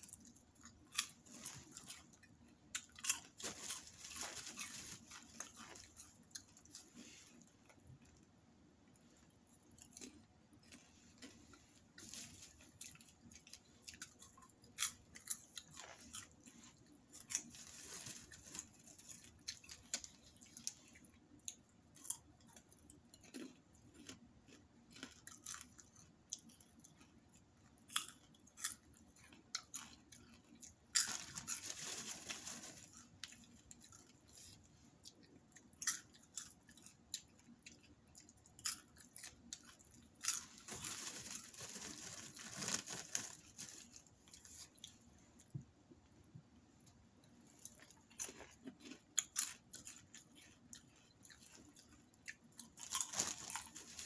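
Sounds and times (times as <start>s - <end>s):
popcorn being chewed: 0.0s - 54.0s
plastic bag crinkling: 2.8s - 7.2s, 17.2s - 20.8s, 31.0s - 33.8s, 40.2s - 44.9s, 52.7s - 54.0s.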